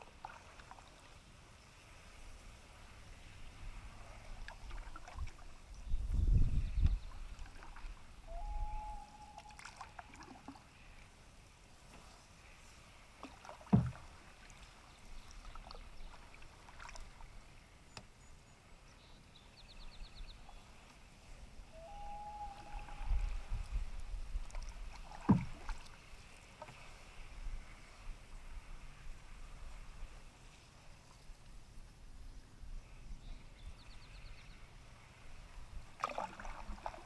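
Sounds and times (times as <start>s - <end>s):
paddle strokes swishing through water: 0.0s - 8.2s, 9.4s - 18.1s, 22.5s - 31.7s, 35.1s - 37.0s
paddle knocking on canoe hull: 13.6s - 14.1s, 25.0s - 25.8s.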